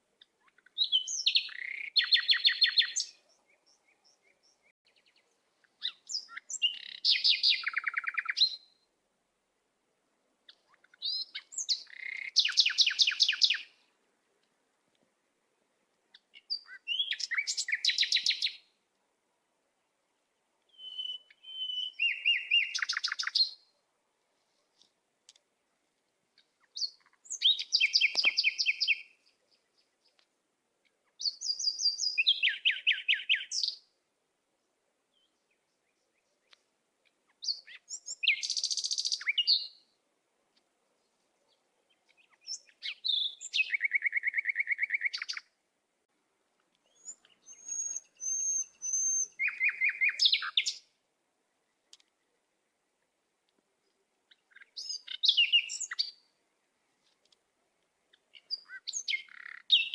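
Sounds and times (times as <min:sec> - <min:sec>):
songbird trilling and chirping: 0:00.2 - 0:08.8, 0:10.5 - 0:13.8, 0:16.1 - 0:18.7, 0:20.6 - 0:23.7, 0:26.4 - 0:33.9, 0:35.1 - 0:39.9, 0:41.4 - 0:45.5, 0:46.7 - 0:51.0, 0:53.8 - 0:56.3, 0:58.0 - 0:59.9.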